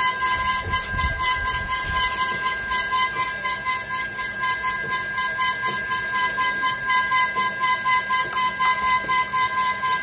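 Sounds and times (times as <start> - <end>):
machine whining and chattering: 0.0 - 10.0.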